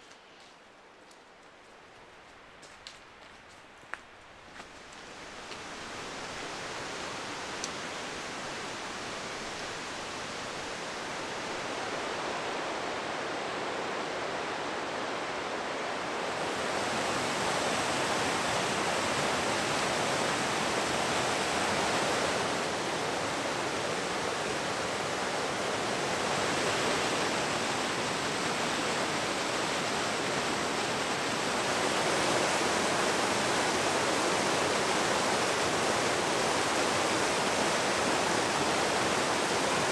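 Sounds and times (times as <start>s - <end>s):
stream rushing over rocks: 4.4s - 39.9s.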